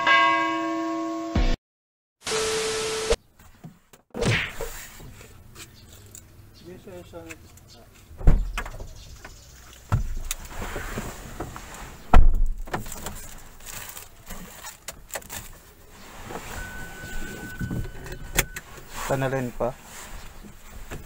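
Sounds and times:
car door thumping: 8.2 - 9.0.

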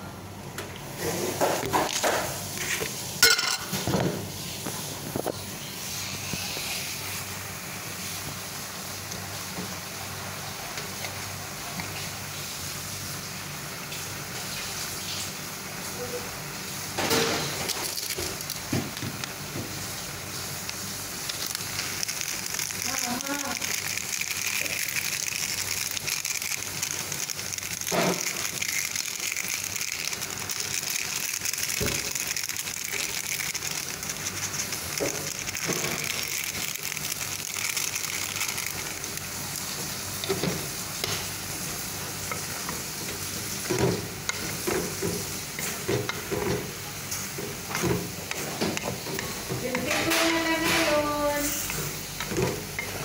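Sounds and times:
food sizzling in a pan: 5.6 - 53.0.

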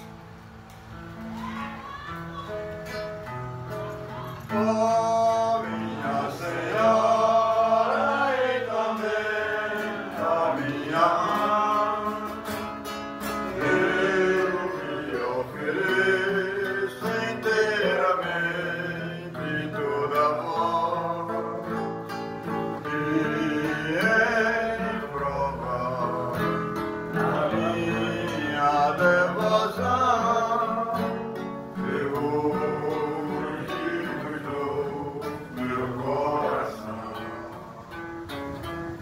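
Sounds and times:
guitar accompaniment: 0.0 - 39.0
voices singing a hymn: 1.9 - 39.0.

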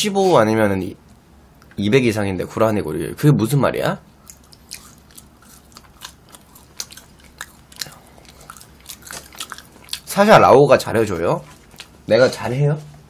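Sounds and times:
mouth chewing fries: 4.1 - 12.1.

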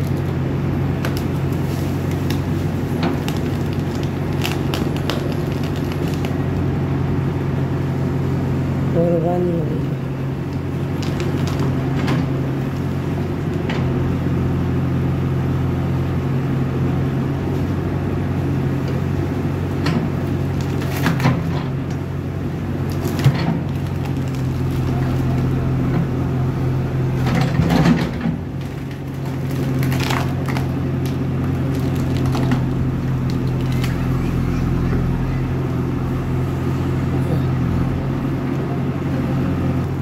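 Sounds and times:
roots and wood cracking: 0.0 - 6.7, 10.5 - 12.0, 20.3 - 21.5, 22.7 - 25.9, 28.4 - 35.6
diesel engine under load: 0.0 - 40.0.

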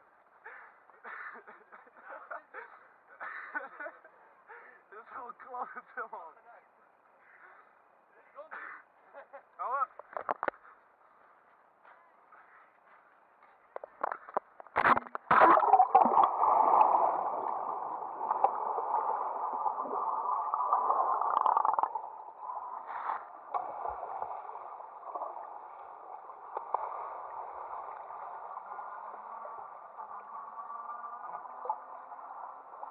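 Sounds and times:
sharp water splashes: 14.8 - 29.6.

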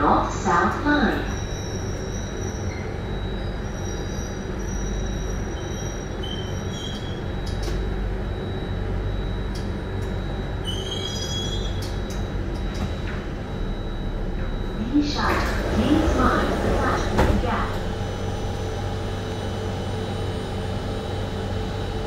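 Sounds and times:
train interior rumble: 0.0 - 22.0
train wheels squealing: 1.2 - 7.6, 10.6 - 11.9.

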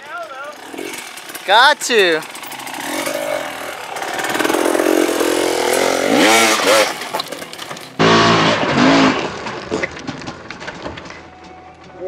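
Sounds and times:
dirt bike engine revving: 0.0 - 9.3.

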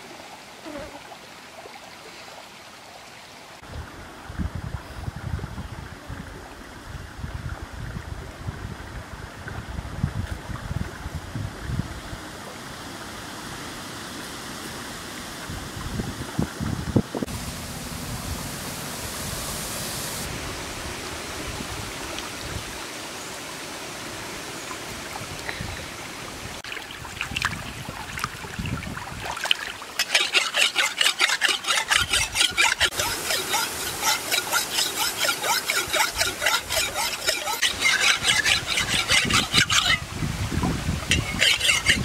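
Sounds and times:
stream water rushing: 0.0 - 42.0
machete scraping on wet rock: 29.9 - 40.0, 41.1 - 42.0.

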